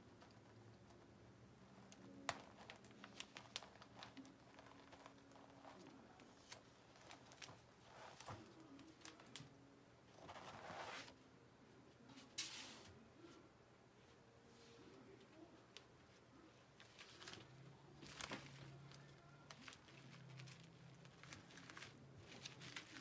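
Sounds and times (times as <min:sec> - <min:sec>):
vinyl peeling crackles: 0:00.0 - 0:11.2, 0:15.8 - 0:23.0
vinyl rustle: 0:00.0 - 0:11.3, 0:12.0 - 0:23.0.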